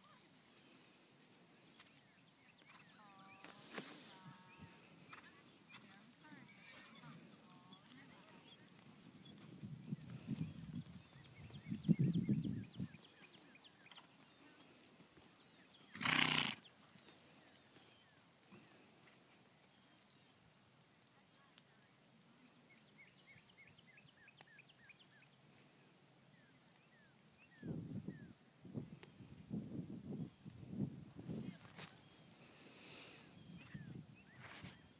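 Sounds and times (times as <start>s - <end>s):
small birds chirping: 0.0s - 29.6s, 30.2s - 34.9s.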